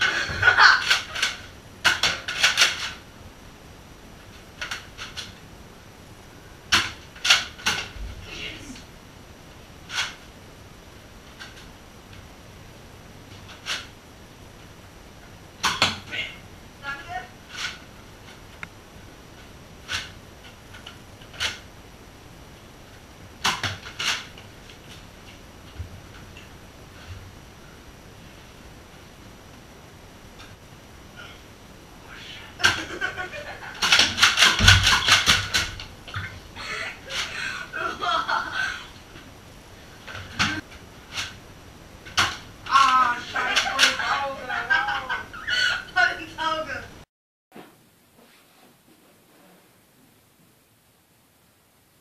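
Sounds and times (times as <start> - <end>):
rustling and scraping of handling: 47.5 - 49.8.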